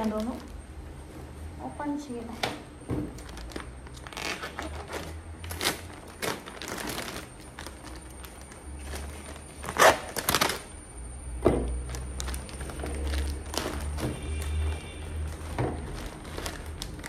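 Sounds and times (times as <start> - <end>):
plastic rustling and crinkling: 0.0 - 10.8, 11.4 - 17.0.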